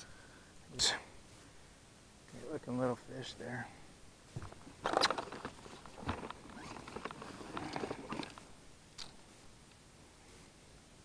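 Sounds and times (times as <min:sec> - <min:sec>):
dull thump: 0:04.4 - 0:04.8.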